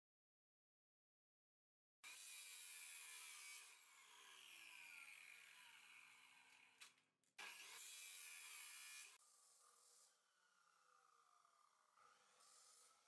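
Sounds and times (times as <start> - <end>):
chop saw grinding steel: 2.0 - 9.2.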